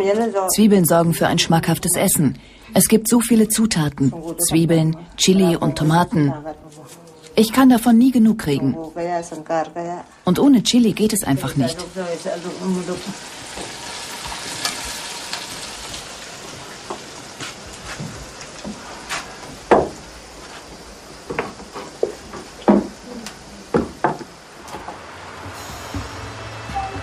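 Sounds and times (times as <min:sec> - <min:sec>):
food sizzling in a pan: 0:10.9 - 0:20.2.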